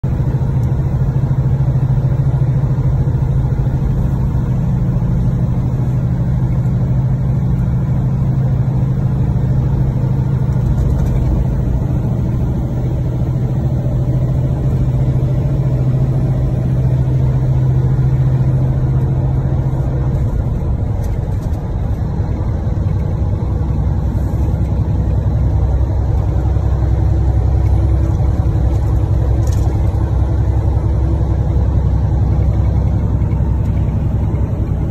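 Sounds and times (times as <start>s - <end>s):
diesel truck engine drone: 0.0s - 34.9s
road noise: 0.0s - 34.9s.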